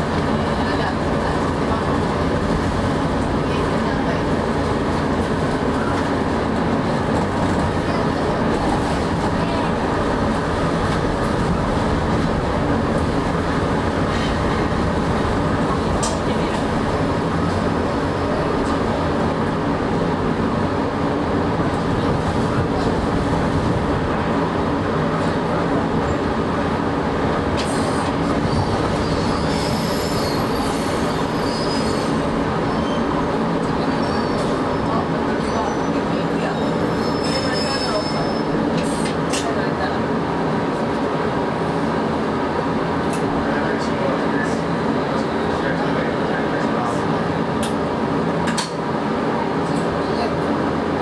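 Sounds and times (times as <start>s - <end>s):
tram rumbling on rails: 0.0s - 51.0s
high wheel squeal: 27.7s - 34.8s, 36.6s - 38.6s.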